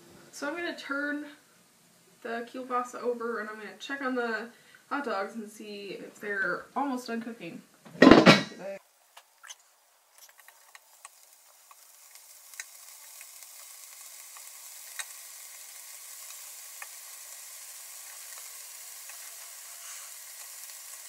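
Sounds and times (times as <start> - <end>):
sausages sizzling on a grill: 8.0 - 21.0.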